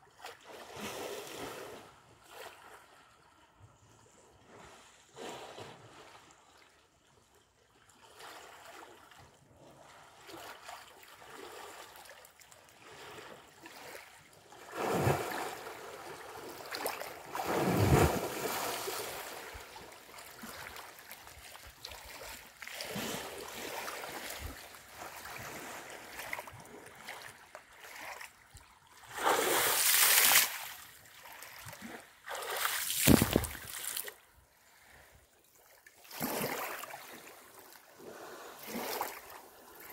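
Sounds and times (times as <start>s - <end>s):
water lapping: 8.0s - 39.9s
elephant splashing in water: 16.8s - 20.7s, 31.7s - 34.1s.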